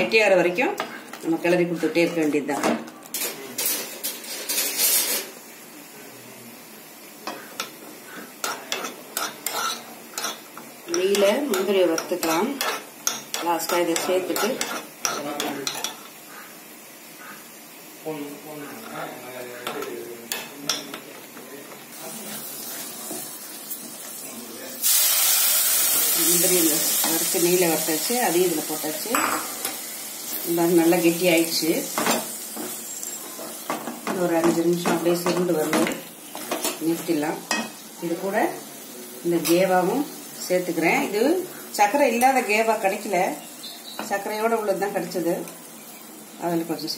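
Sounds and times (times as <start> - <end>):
loud sizzle: 0.0 - 46.9
metal spoon scraping steel pan: 3.7 - 5.3, 8.4 - 10.4, 11.0 - 16.0.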